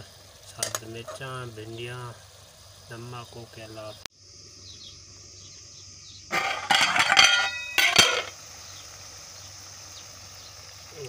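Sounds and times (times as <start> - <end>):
metal pot lid clattering: 6.3 - 8.3.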